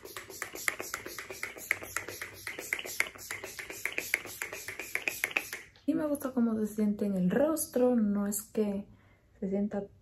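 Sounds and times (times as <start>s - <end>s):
spray bottle spritzes: 0.0s - 5.8s.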